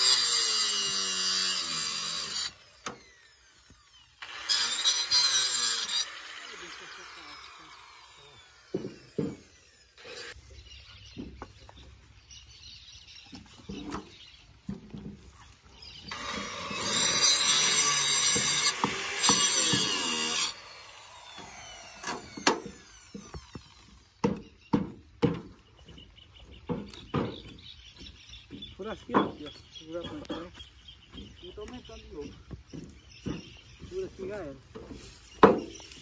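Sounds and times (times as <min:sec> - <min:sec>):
electric power tool running: 0:00.0 - 0:10.4, 0:16.1 - 0:24.2
sharp knocks: 0:08.7 - 0:09.5, 0:26.6 - 0:29.5.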